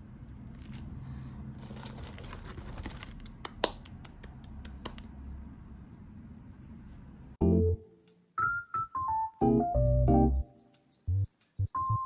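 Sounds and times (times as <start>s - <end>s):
plastic wrap crinkling: 0.4s - 3.5s.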